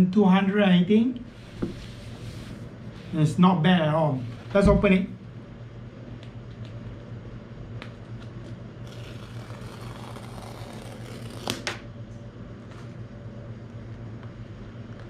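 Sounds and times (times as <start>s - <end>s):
paper strip tearing: 8.8s - 11.8s
paper strip snapping: 8.9s - 11.8s.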